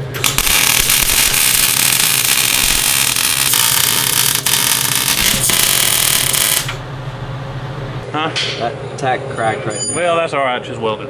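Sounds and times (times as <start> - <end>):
welder arc crackling and hissing: 0.0 - 6.8.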